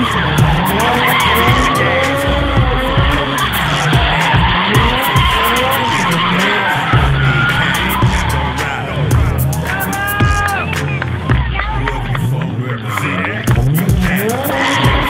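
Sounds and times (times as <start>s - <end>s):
car engine revving: 0.0s - 15.0s
tyres squealing: 0.0s - 15.0s.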